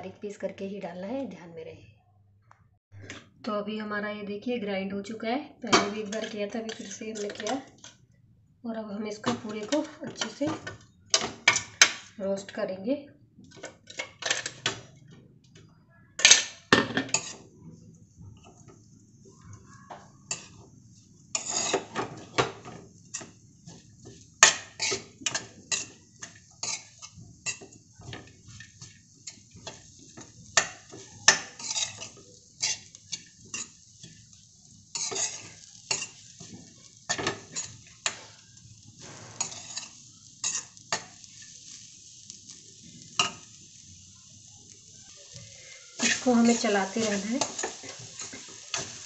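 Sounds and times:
ladle scraping metal pan: 0:21.3 - 0:29.9, 0:30.6 - 0:34.2, 0:39.0 - 0:41.2.

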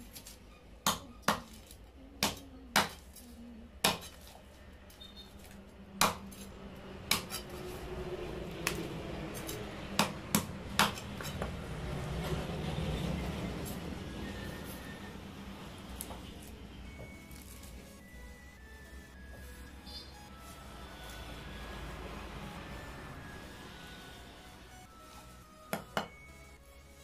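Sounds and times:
knife scraping fish scales: 0:07.1 - 0:07.9
blade knocking on wooden block: 0:25.7 - 0:26.2.

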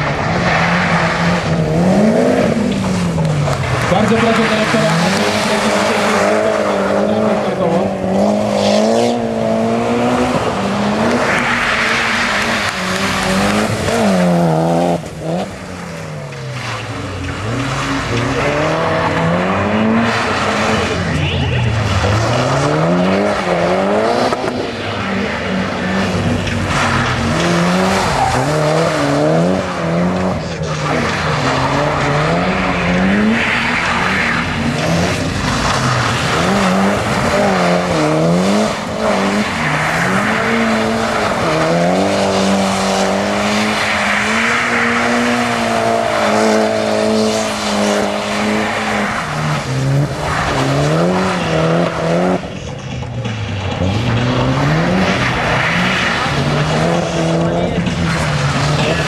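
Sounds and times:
car engine revving hard: 0:00.0 - 0:52.8, 0:53.5 - 0:59.0
tyres skidding on wet surface: 0:00.0 - 0:59.0.

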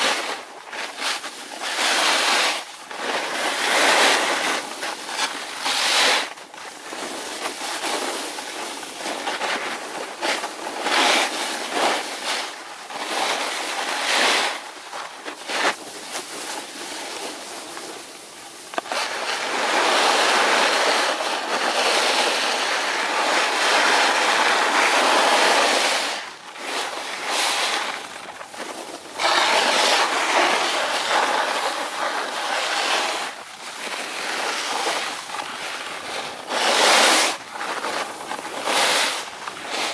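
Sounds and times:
snowboard scraping over snow: 0:00.0 - 0:39.9.

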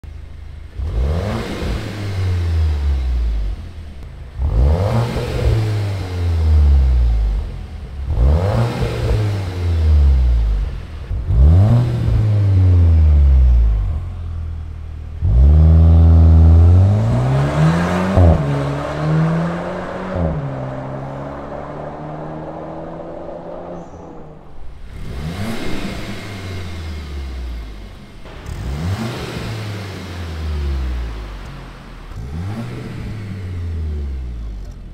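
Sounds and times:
car engine revving: 0:00.0 - 0:34.9.

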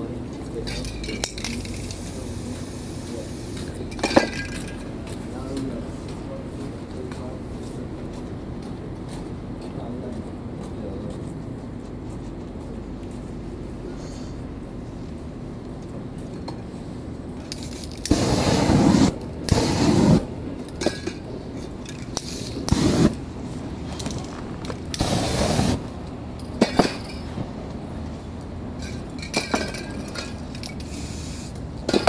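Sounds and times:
spray paint can hissing: 0:17.6 - 0:20.3, 0:22.1 - 0:23.2, 0:24.9 - 0:25.8, 0:30.8 - 0:31.6.

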